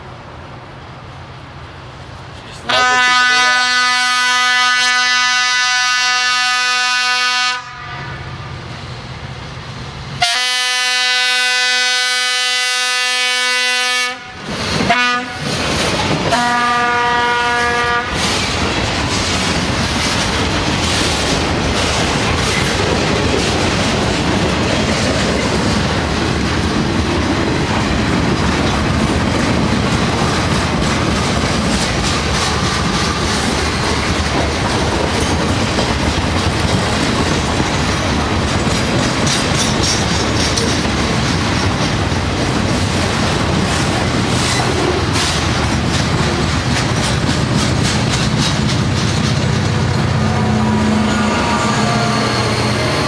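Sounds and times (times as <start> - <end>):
freight train rumbling past: 0.0 - 53.0
train horn: 2.7 - 8.5, 10.2 - 15.6, 16.3 - 18.3, 50.1 - 53.0
wheels clacking over rail joints: 14.4 - 16.7, 18.1 - 51.0.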